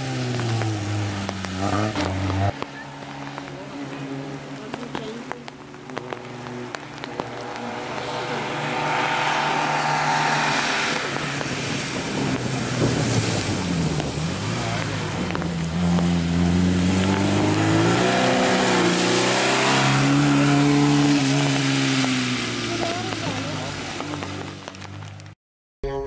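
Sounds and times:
rally car engine revving: 0:00.0 - 0:25.2.

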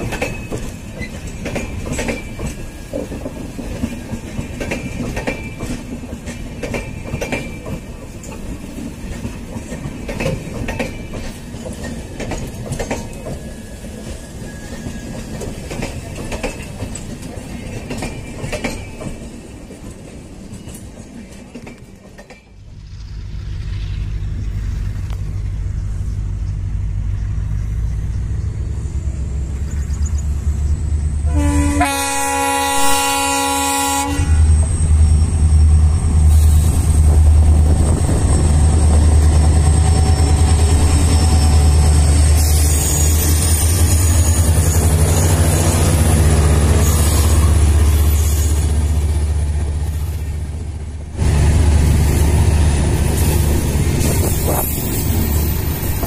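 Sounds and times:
train wheels clattering over rail joints: 0:00.0 - 0:25.4
diesel locomotive rumbling: 0:00.0 - 0:56.0.

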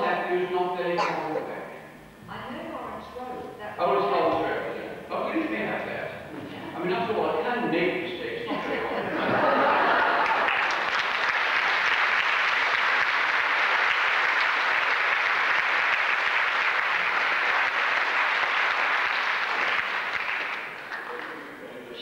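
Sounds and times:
audience applauding: 0:09.2 - 0:21.9.

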